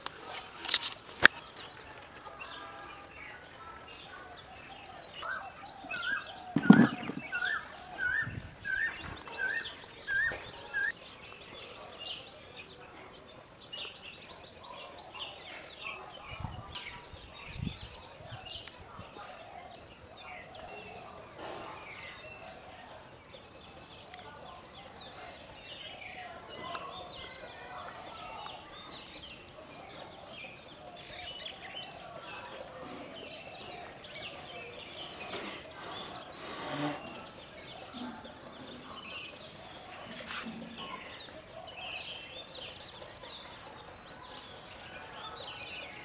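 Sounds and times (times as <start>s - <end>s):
birds chirping and chattering: 0.0s - 46.0s
brief bumps: 6.6s - 7.6s.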